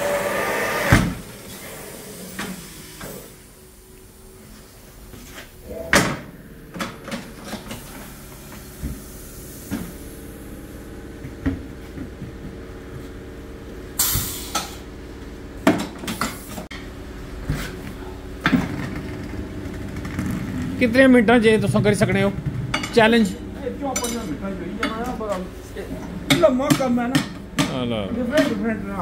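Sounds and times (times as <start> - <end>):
steady low hum: 1.1 - 29.0
short hisses of air: 14.0 - 14.8.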